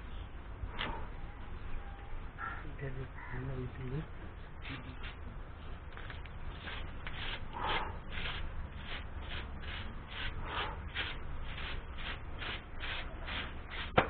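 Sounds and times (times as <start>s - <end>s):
hand tool scraping back and forth: 6.5s - 14.0s.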